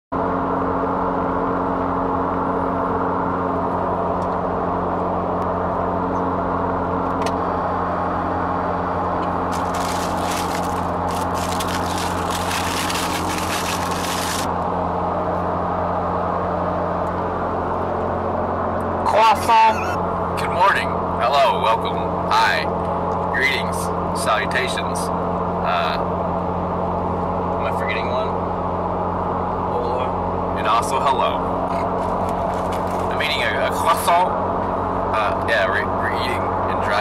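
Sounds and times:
vehicle engine and road drone: 0.2s - 37.0s
paper bag crinkling: 9.5s - 14.5s, 32.0s - 33.1s.

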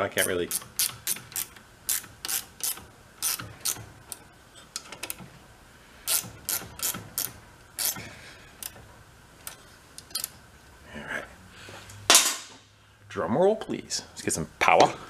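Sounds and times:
hand ratchet clicking: 0.2s - 4.2s, 6.1s - 8.0s.

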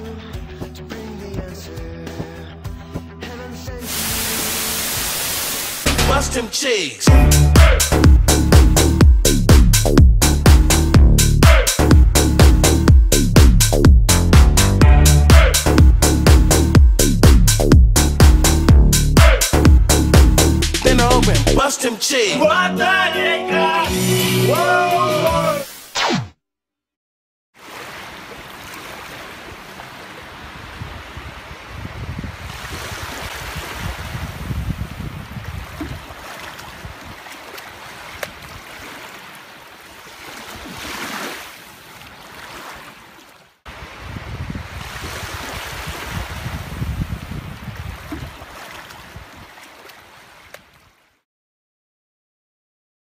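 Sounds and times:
small waves washing ashore: 3.8s - 5.9s, 27.6s - 51.1s
wind buffeting microphone: 30.5s - 36.2s, 43.8s - 49.5s.

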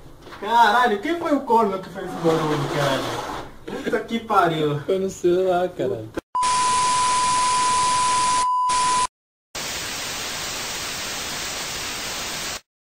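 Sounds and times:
high test tone beep: 6.4s - 9.1s
analogue tv static hiss: 9.6s - 12.7s.

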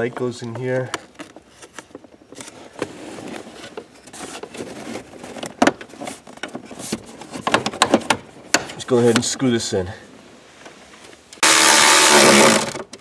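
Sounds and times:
rustling: 0.3s - 7.6s.

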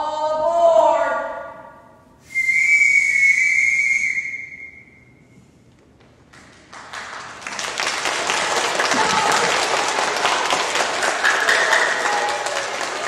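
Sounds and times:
whistle blast: 2.2s - 5.4s
applause: 6.3s - 13.0s.

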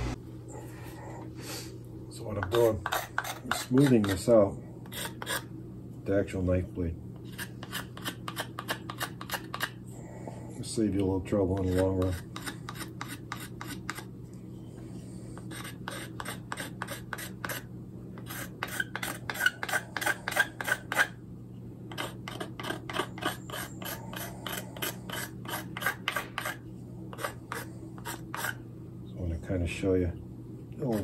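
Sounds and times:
knife scraping wooden spoon: 2.2s - 5.5s, 7.2s - 9.8s, 11.3s - 14.1s, 15.4s - 21.2s, 21.9s - 28.6s, 30.8s - 31.0s.

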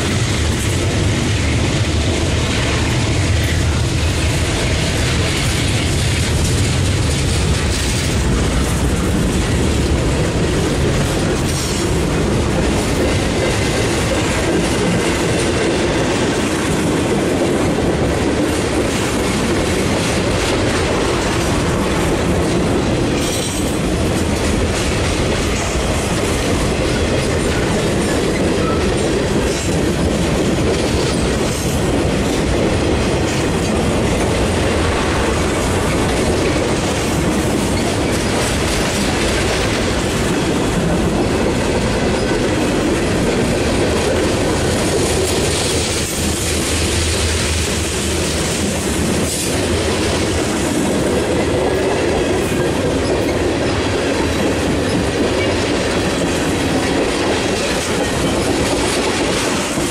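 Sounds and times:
freight train wheels rumbling: 0.0s - 59.9s.

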